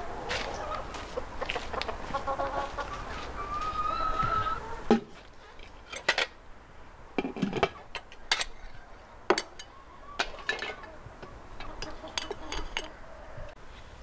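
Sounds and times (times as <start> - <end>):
metal lid clinking on pot: 7.2 - 8.6, 9.3 - 10.9, 11.6 - 13.0.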